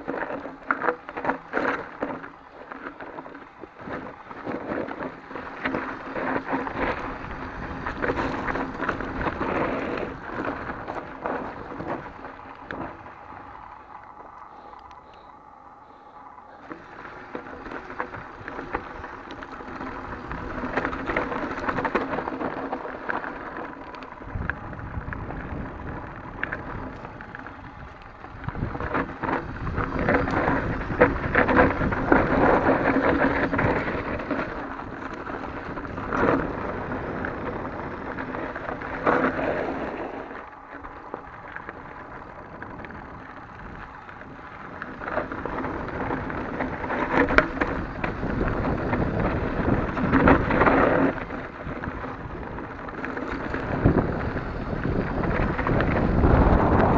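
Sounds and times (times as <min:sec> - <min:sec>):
bike rattling over bumps: 0:00.0 - 0:56.9
bike tyres crunching over gravel: 0:00.0 - 0:56.9.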